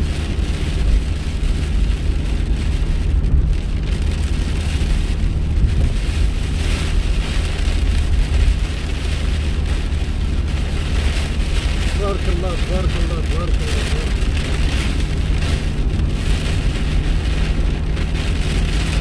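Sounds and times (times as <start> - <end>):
heavy rain on a car: 0.0 - 19.0
low engine and road rumble: 0.0 - 19.0.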